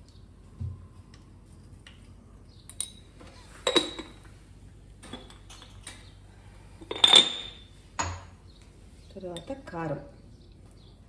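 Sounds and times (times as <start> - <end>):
metal spoon clinking on jar: 2.7 - 3.0, 6.9 - 8.2.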